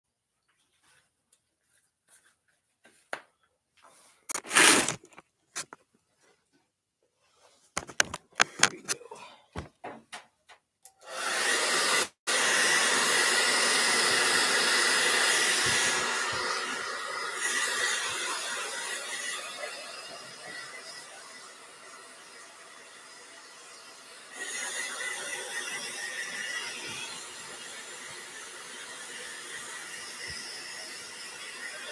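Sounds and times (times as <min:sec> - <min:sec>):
knocks and handling clatter: 0:07.8 - 0:09.0
hair dryer blowing: 0:11.0 - 0:31.9.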